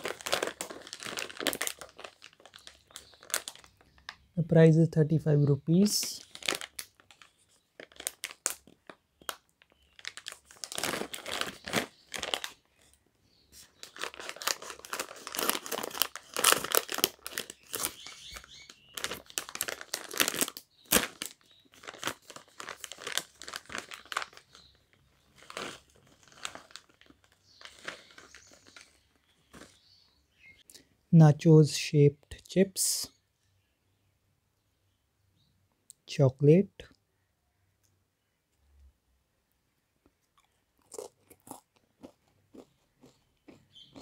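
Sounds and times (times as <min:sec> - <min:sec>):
plastic snack pouch crinkling: 0:00.0 - 0:04.3, 0:05.7 - 0:13.0, 0:13.6 - 0:29.9, 0:40.2 - 0:44.0.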